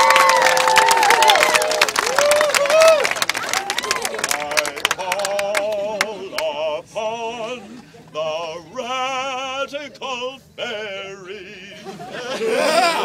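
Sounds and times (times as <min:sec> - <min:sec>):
handclaps: 0:00.0 - 0:06.5
man singing operatically: 0:04.3 - 0:13.0.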